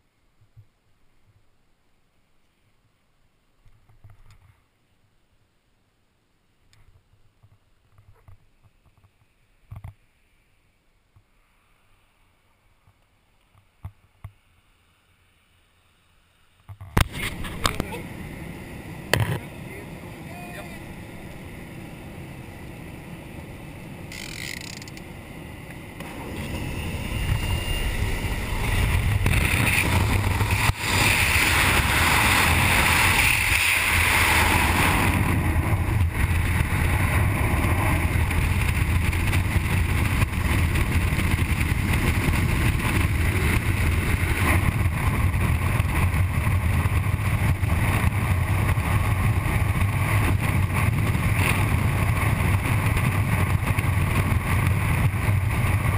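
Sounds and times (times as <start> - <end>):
freefall wind roar on microphone: 16.7 - 55.9
engine noise and propeller blast: 17.0 - 55.9
muffled plane engine drone: 17.0 - 55.9.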